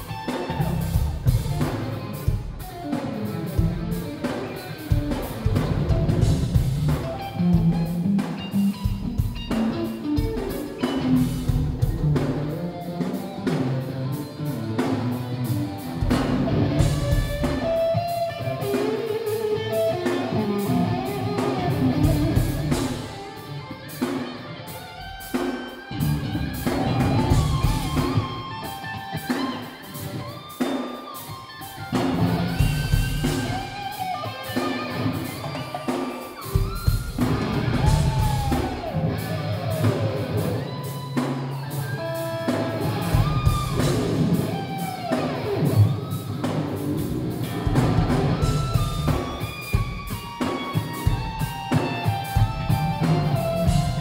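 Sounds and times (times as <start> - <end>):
bass guitar: 0.0 - 30.6, 31.2 - 54.0
drum kit: 0.0 - 54.0
electric guitar lead lines: 0.0 - 54.0.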